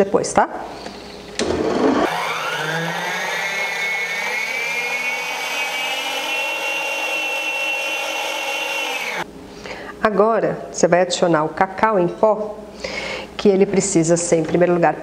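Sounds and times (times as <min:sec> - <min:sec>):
stand mixer motor whining: 0:00.9 - 0:09.2.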